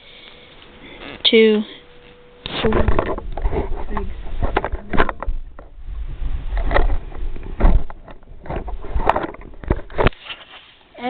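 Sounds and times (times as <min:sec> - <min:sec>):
camera handling rumble: 0:02.5 - 0:10.5.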